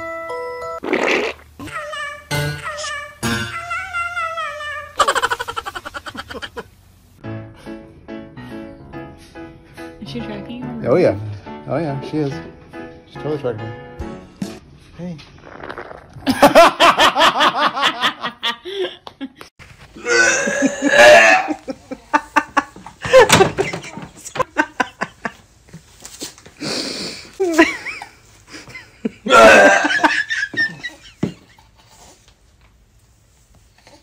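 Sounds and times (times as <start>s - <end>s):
man laughing hard: 5.0s - 6.7s, 16.3s - 19.4s, 27.4s - 31.4s
burp-like vocal sounds: 15.4s - 16.3s, 20.0s - 21.6s, 29.3s - 29.9s.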